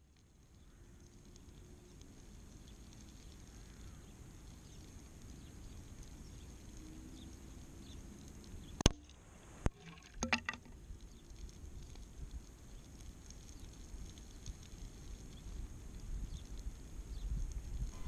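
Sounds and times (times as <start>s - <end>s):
low steady hiss: 0.0s - 18.0s
pellet hitting target crack: 9.7s - 10.8s.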